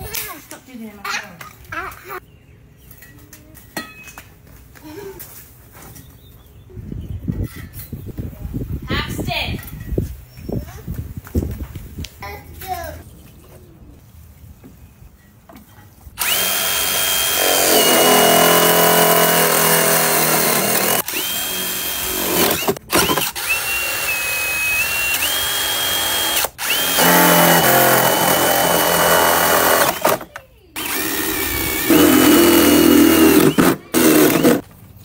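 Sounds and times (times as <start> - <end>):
cordless drill whining: 16.2 - 34.6.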